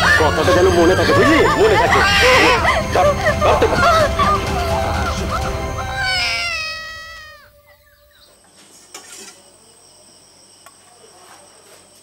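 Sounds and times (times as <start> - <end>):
high wailing cry: 0.0 - 8.1.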